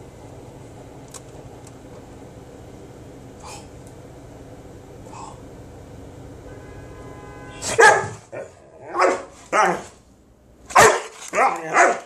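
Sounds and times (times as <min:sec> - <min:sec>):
dog barking: 0:07.6 - 0:10.0, 0:10.7 - 0:12.0.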